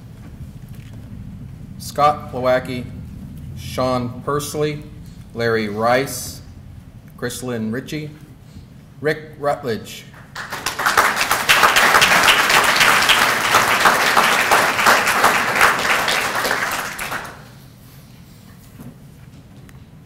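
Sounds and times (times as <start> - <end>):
audience applauding: 10.1 - 17.6.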